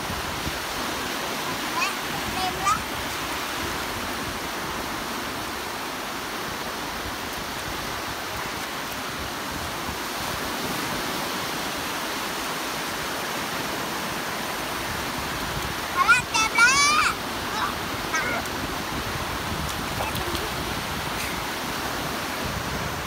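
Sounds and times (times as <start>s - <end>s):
small waves washing onto beach: 0.0s - 23.0s.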